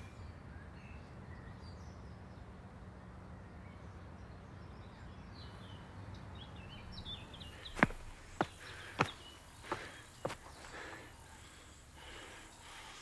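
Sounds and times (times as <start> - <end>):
sharp footstep: 7.6 - 10.5.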